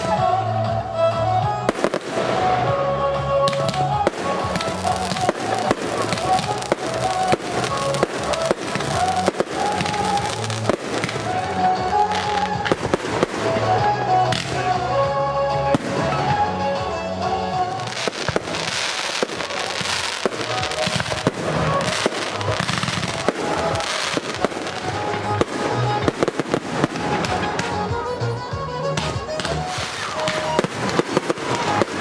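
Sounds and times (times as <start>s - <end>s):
music playing: 0.0s - 32.0s
fireworks bangs: 1.7s - 14.7s, 17.6s - 28.0s, 29.0s - 32.0s
fireworks crackling hiss: 1.7s - 14.8s, 15.7s - 28.1s, 28.9s - 32.0s.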